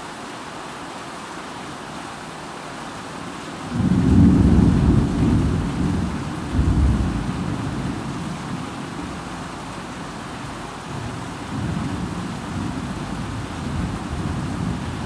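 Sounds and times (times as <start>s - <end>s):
heavy rain: 0.0s - 15.0s
thunder rumbling: 3.8s - 9.3s.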